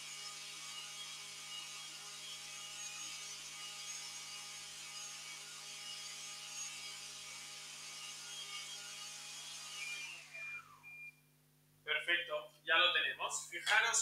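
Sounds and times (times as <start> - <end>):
food processor motor whining: 0.0 - 11.1.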